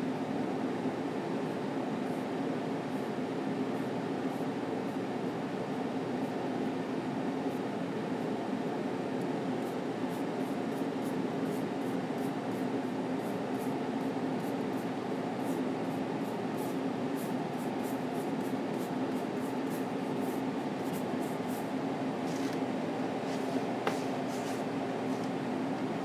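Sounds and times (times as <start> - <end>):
room hum with low drone: 0.0 - 26.0
brush scratching paint: 16.6 - 22.6, 23.2 - 25.3.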